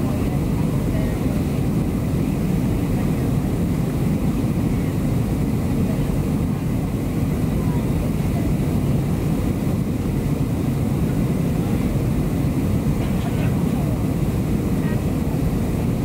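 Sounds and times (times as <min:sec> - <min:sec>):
jet engines in aircraft cabin: 0:00.0 - 0:16.0.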